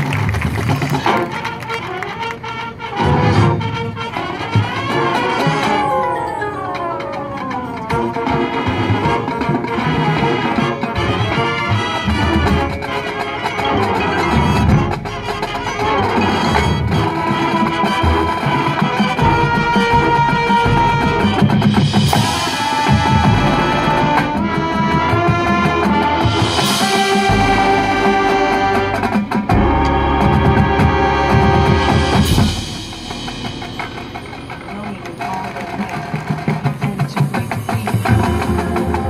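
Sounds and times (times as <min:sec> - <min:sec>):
marching band playing: 0:00.0 - 0:39.0
cymbal crashes: 0:31.8 - 0:35.6.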